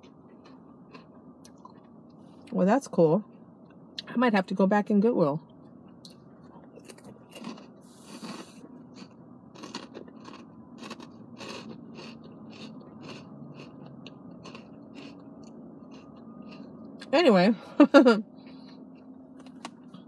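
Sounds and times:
person chewing crunchy food: 0.0s - 2.5s, 6.0s - 17.1s.

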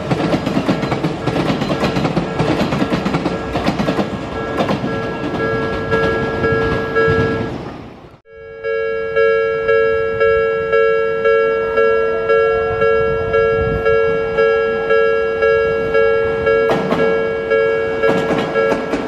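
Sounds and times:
train wheels clacking over rail joints: 0.0s - 7.5s, 16.6s - 17.2s, 17.9s - 19.0s
level-crossing warning bell ringing: 0.0s - 7.7s, 8.3s - 19.0s.

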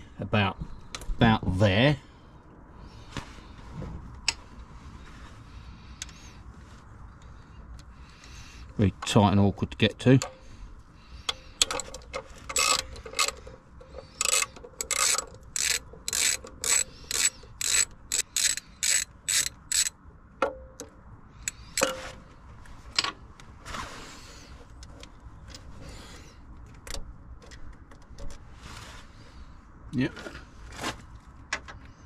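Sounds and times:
ratchet wrench clicking: 11.3s - 20.0s.

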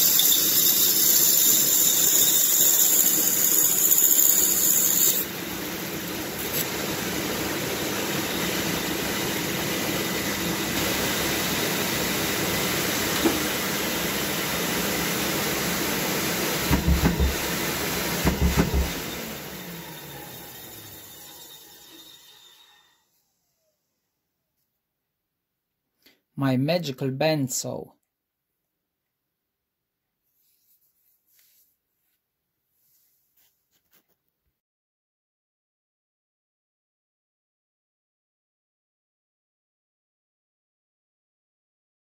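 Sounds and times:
band saw cutting wood: 0.0s - 22.8s
band saw running unloaded: 16.6s - 22.6s
quick knocks: 16.7s - 17.5s, 18.2s - 19.0s.

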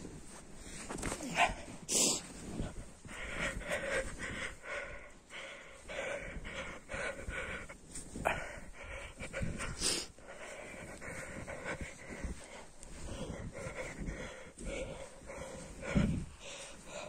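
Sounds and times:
heavy panting breaths: 0.0s - 17.0s.

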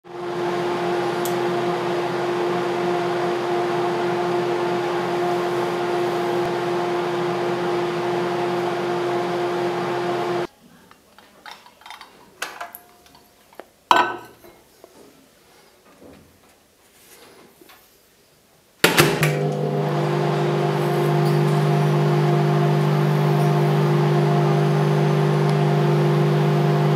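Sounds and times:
microwave oven humming: 0.1s - 10.5s, 19.1s - 26.9s.

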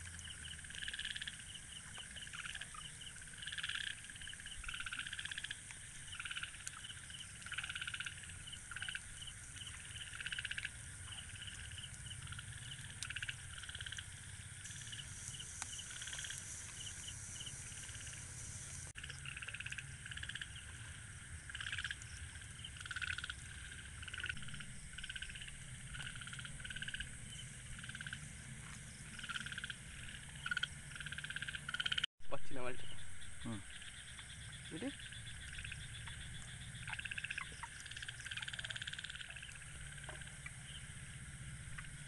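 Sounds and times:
frogs croaking: 0.0s - 42.0s
high insect hiss: 0.0s - 42.0s
low rumble: 23.7s - 31.3s.

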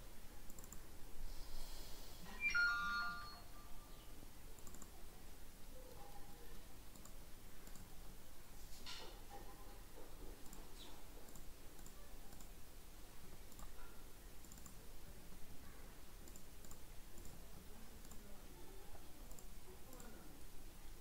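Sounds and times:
computer mouse clicking: 0.4s - 0.9s, 4.6s - 4.9s, 6.9s - 7.9s, 10.4s - 12.6s, 13.5s - 14.8s, 16.2s - 17.4s, 18.0s - 18.3s, 19.3s - 20.1s.

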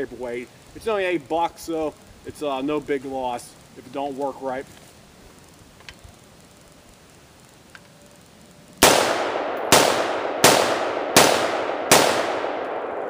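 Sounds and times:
rifle gunshots with long echo: 8.8s - 13.0s.

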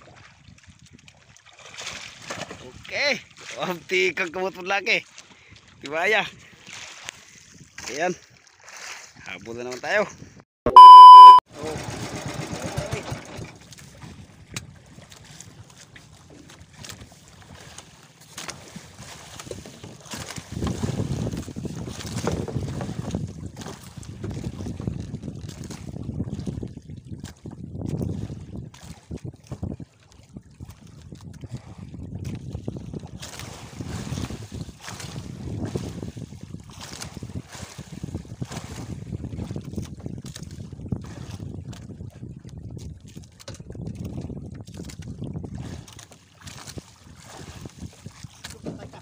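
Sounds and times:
water sloshing around boat: 0.0s - 10.2s, 10.9s - 49.0s
wind buffeting microphone: 18.7s - 45.9s, 46.5s - 49.0s.

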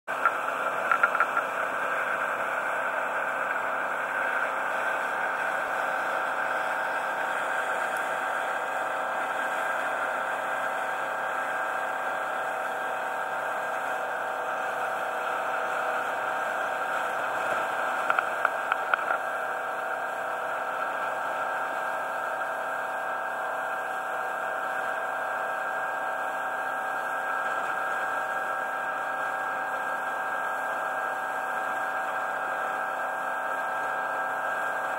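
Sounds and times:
boat engine droning: 0.1s - 34.9s.

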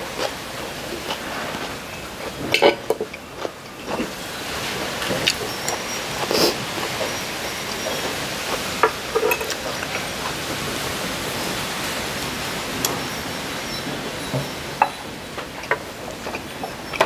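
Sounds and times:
steady hiss: 0.0s - 17.0s
cutlery clinking on ceramic plate: 8.8s - 10.0s.

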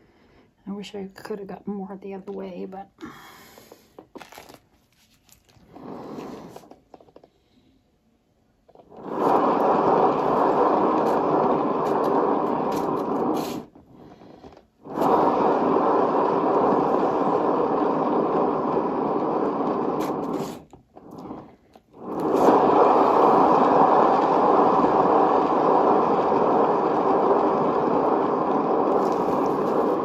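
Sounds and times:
turntable whirring: 8.7s - 30.0s.

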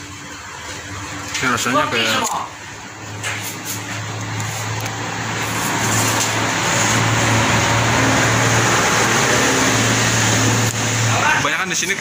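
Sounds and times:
vehicle engine hum: 0.0s - 12.0s
broad rushing noise: 2.8s - 11.6s.

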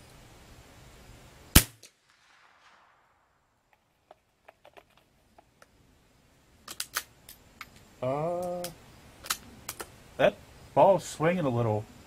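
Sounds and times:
rifle shot: 1.5s - 3.7s.

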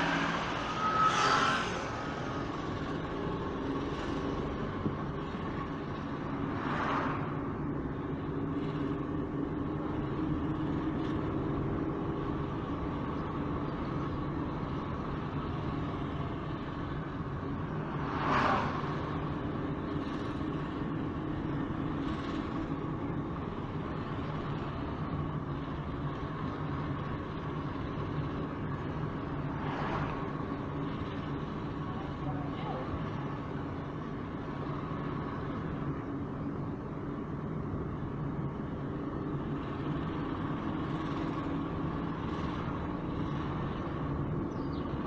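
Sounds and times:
vehicle rushing past: 0.0s - 3.2s, 6.3s - 7.6s, 17.7s - 19.4s
road noise: 0.0s - 45.0s
vehicle engine hum: 0.0s - 45.0s.

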